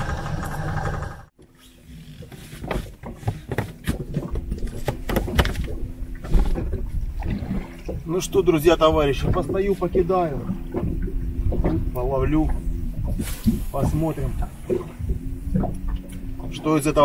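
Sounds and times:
engine idling: 0:00.0 - 0:01.3
low rumble: 0:05.7 - 0:17.0.

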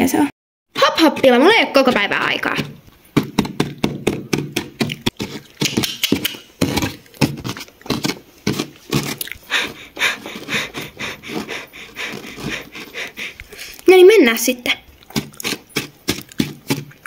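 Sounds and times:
toy hooves crunching in sand: 0:04.6 - 0:17.0.

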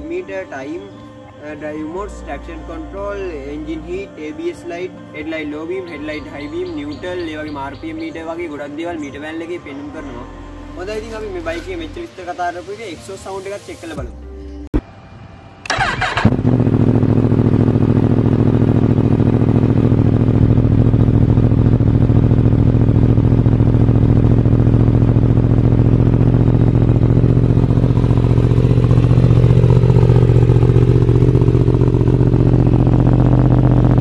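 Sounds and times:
motorcycle engine idling: 0:05.3 - 0:12.3, 0:15.7 - 0:34.0.

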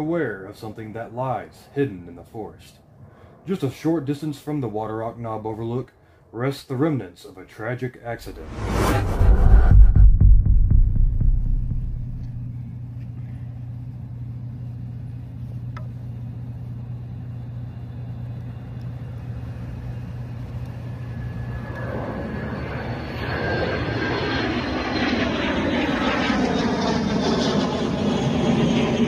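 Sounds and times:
airplane engine flying overhead: 0:00.0 - 0:29.0
steady low hum: 0:08.0 - 0:22.8.

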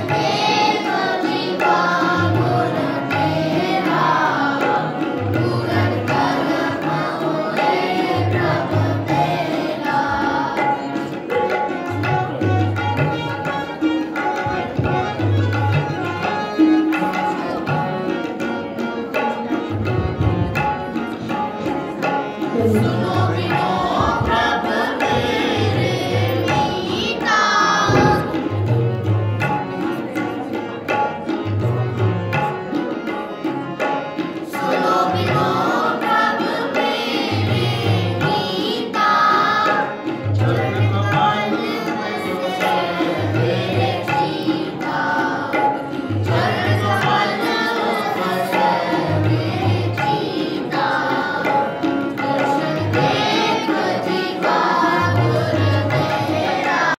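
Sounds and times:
harmonium: 0:00.0 - 0:56.9
person singing a hymn: 0:22.5 - 0:25.2.

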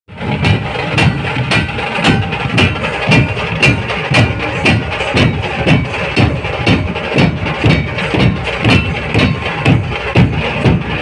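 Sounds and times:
barrel drums playing fast rhythm: 0:00.1 - 0:11.0.

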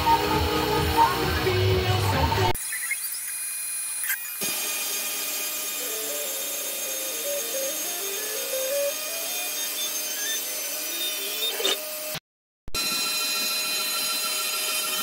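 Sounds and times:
cnc router cutting wood: 0:02.5 - 0:12.2, 0:12.8 - 0:15.0.

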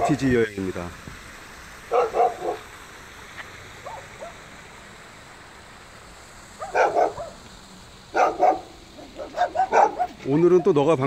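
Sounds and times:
dog barking: 0:01.9 - 0:02.6, 0:03.8 - 0:04.4, 0:06.6 - 0:07.4, 0:08.1 - 0:10.7
faint dog yips: 0:08.2 - 0:10.2.

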